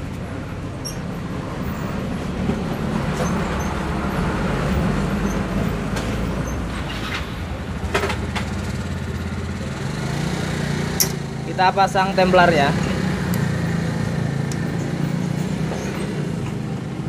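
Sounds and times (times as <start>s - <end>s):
sharp metallic clicks: 11.0s - 11.3s.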